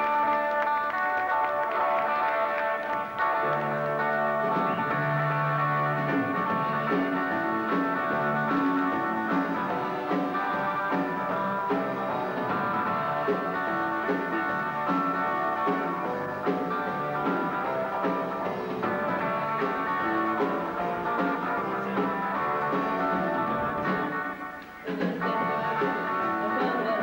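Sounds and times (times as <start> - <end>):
drum kit: 0.0 - 27.0
electric guitar riff: 0.0 - 27.0.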